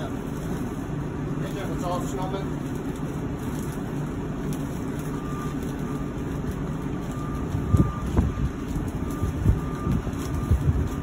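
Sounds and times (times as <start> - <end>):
low engine rumble: 0.0 - 11.0
reversing alarm beeping: 4.8 - 11.0.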